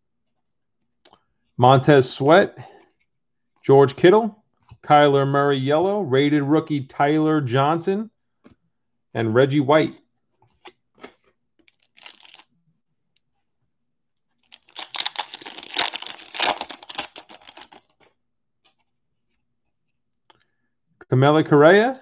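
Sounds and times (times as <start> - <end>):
card pack wrapper tearing: 10.6 - 12.5, 14.4 - 18.1
wrapper crinkle: 11.0 - 12.5, 14.4 - 18.1.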